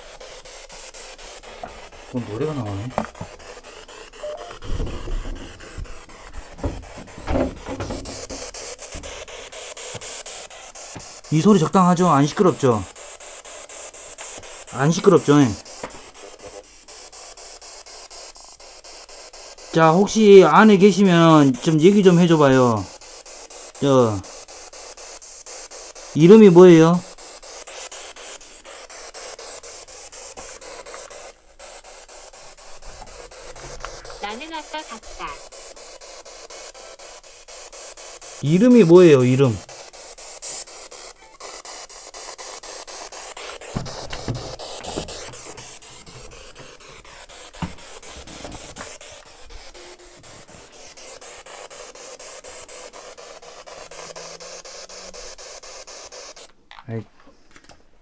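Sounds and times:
camera rubbing and rustling: 0.0s - 20.1s, 27.0s - 38.6s, 39.6s - 56.8s
pulsing radio static: 0.0s - 56.5s
footsteps thudding: 2.9s - 3.4s, 4.4s - 10.2s, 10.9s - 11.2s, 15.8s - 16.1s, 43.5s - 49.2s.

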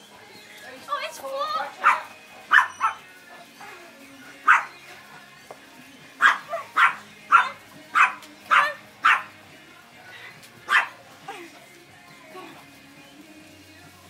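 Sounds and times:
large dog barking: 1.8s - 3.1s, 4.4s - 4.8s, 6.2s - 9.4s, 10.7s - 11.0s.

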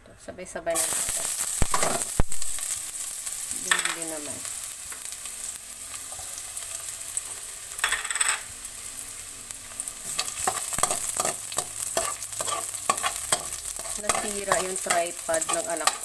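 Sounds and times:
onion sizzling in hot oil: 0.7s - 16.0s
metal spoon scraping wok: 10.0s - 16.0s.

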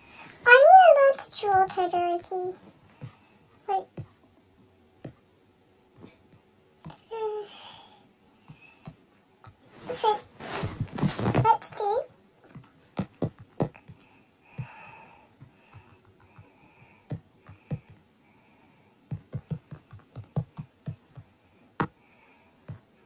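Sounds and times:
fingers tapping on touchscreen: 12.5s - 14.9s, 15.7s - 18.0s, 19.1s - 22.0s.

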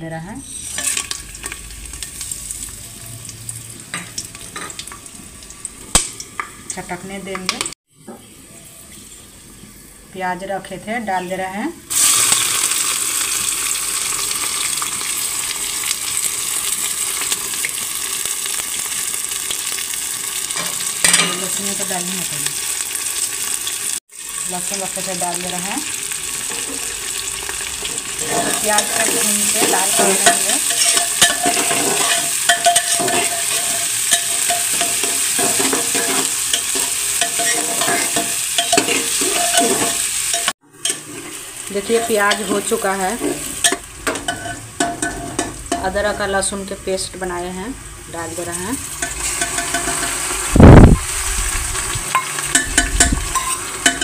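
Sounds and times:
onions sizzling in hot oil: 0.1s - 54.0s
metal spoon scraping a pot: 28.1s - 45.9s, 48.9s - 50.4s, 52.1s - 54.0s.

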